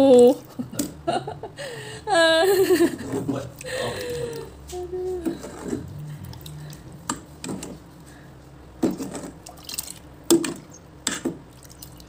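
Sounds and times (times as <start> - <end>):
ladle stirring liquid in pot: 5.1 - 12.0.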